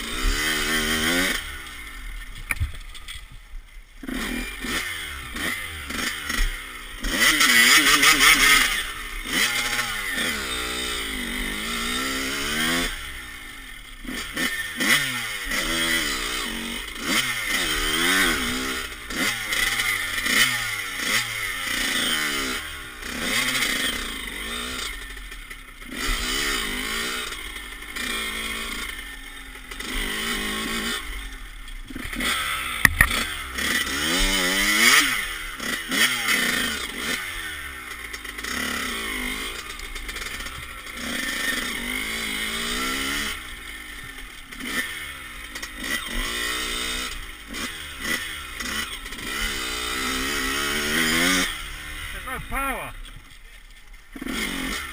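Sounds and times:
motocross engine revving: 0.0 - 3.2, 3.9 - 54.9.

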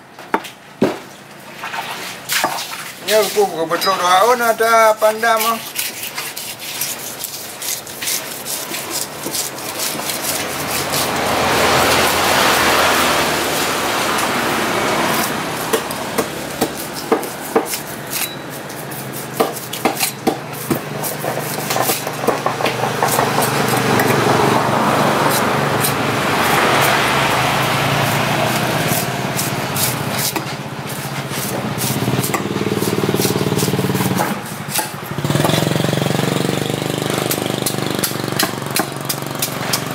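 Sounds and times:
motor traffic: 0.0 - 39.9
knife scraping fish scales: 5.0 - 14.3, 14.9 - 22.2, 25.2 - 35.7.

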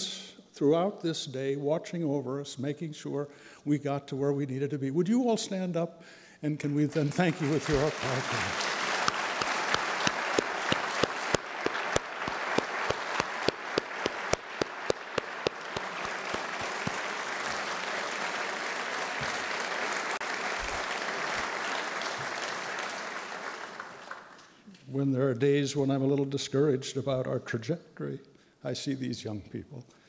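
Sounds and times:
audience applauding: 7.0 - 24.6
loud sharp close claps: 7.0 - 24.6.

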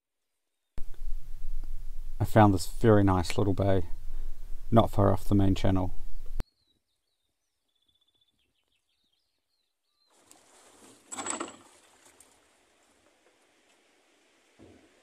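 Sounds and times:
birds chirping: 2.0 - 10.3
water splash: 10.2 - 15.0.

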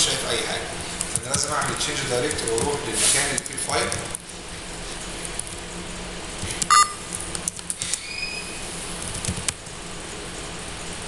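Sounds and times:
room hum: 0.0 - 11.0
short high-pitched beep: 6.7 - 7.0
keyboard keys clicking: 9.0 - 9.6.

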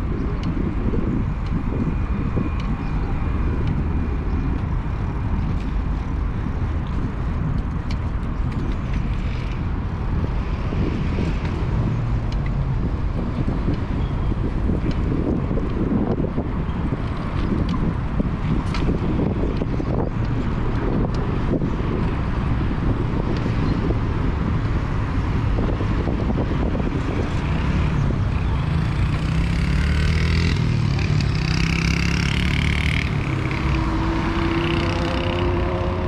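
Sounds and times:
street traffic: 0.0 - 36.0
wind rumbling on microphone: 0.0 - 36.0.

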